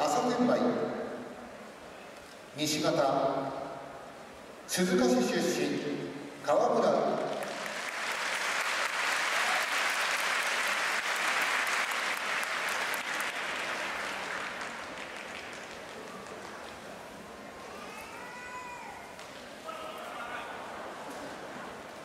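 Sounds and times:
audience applauding: 7.3s - 17.0s.

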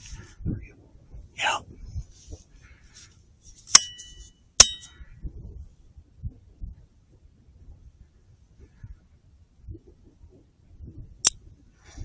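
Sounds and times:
sharp metallic clicks with ringing: 3.7s - 4.9s.

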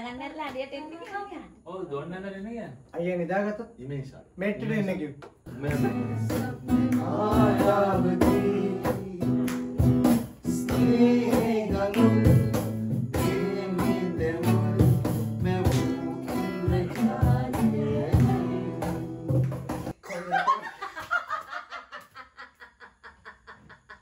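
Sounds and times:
person singing: 5.5s - 9.5s, 10.5s - 19.8s
strummed acoustic guitar: 5.5s - 19.9s.

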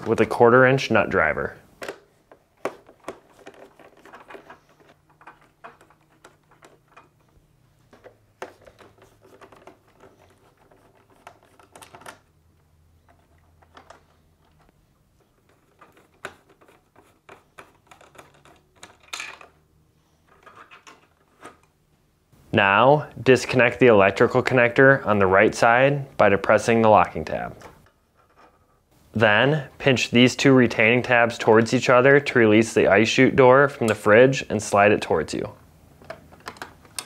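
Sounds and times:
plastic parts being handled: 1.6s - 21.8s, 35.9s - 37.0s.

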